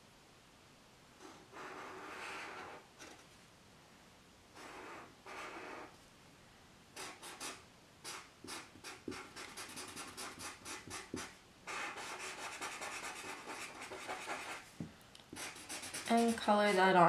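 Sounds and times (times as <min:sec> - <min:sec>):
marker scratching on paper: 0:01.2 - 0:03.2, 0:04.6 - 0:05.9, 0:07.0 - 0:14.7, 0:15.3 - 0:17.0.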